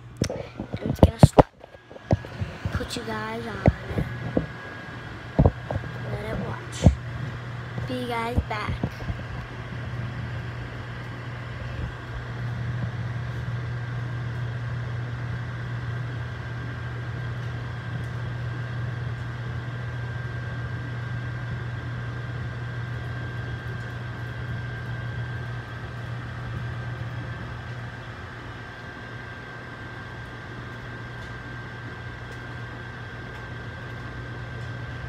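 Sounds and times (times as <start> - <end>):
thin high whine: 0.0 - 16.3
fan whirring: 0.0 - 35.0
microwave oven humming: 0.0 - 35.0.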